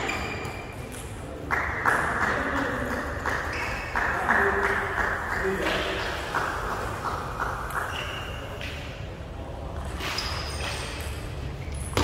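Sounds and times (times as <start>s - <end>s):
low rumble of large hall: 0.0s - 12.0s
brief high squeaks: 10.0s - 11.8s.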